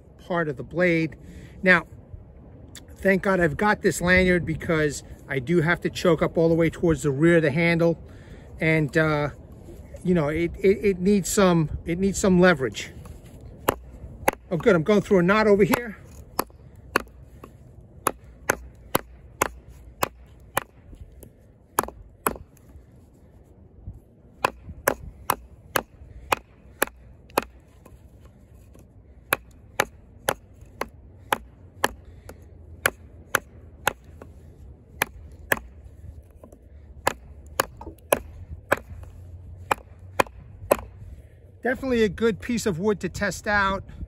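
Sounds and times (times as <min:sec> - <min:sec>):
knife chopping wood: 0:13.0 - 0:22.7, 0:24.4 - 0:41.1.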